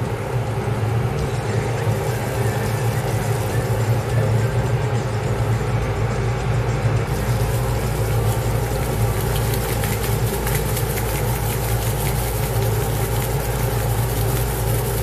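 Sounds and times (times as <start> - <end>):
steady low hum: 0.0 - 15.0
vegetables sizzling in a frying pan: 7.1 - 15.0.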